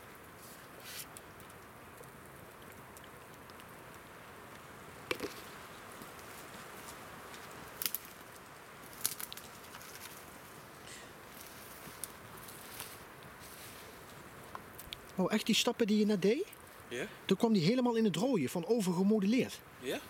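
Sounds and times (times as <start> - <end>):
campfire crackling: 0.0 - 20.0
wood popping: 1.1 - 6.6, 7.3 - 10.2.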